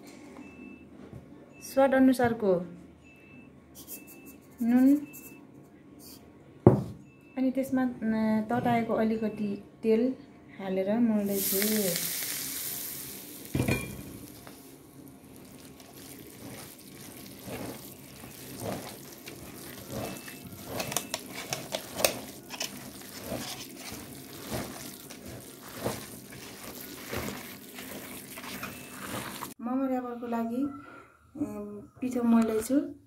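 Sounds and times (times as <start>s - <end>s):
hot oil sizzling on meat: 11.3s - 29.6s
hand kneading wet mince: 15.2s - 29.6s.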